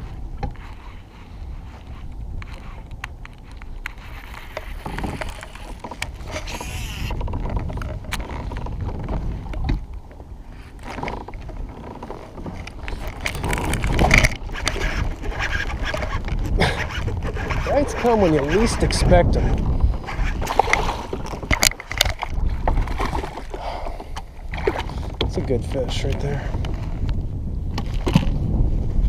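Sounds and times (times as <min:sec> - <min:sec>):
clicks and scrapes: 0:00.0 - 0:09.8, 0:10.7 - 0:23.6
water movement: 0:00.0 - 0:28.3
kayak handling rumble: 0:00.0 - 0:29.0.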